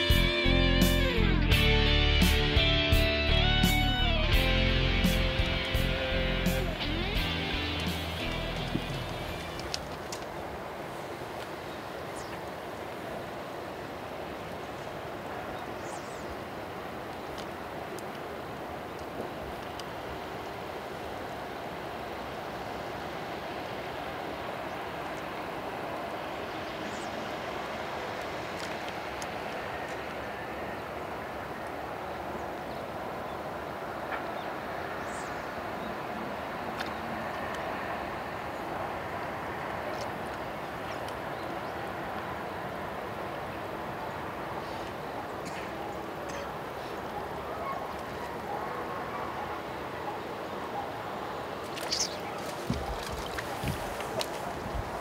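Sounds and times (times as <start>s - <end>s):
outdoor background hiss: 0.0s - 55.0s
outdoor rushing hiss: 1.6s - 14.3s, 44.0s - 45.1s.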